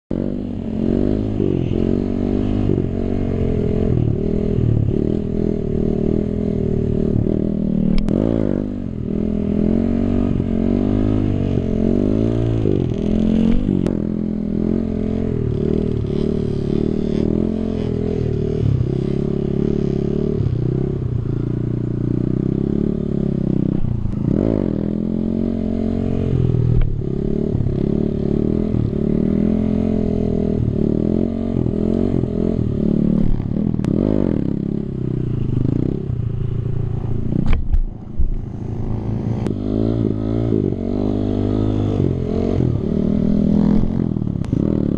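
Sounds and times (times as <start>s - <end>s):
motorcycle engine revving: 0.1s - 44.9s.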